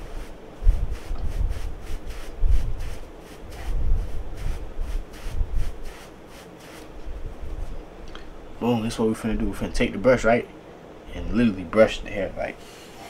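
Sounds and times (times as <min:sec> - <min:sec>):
hands rubbing hair: 0:00.0 - 0:07.8.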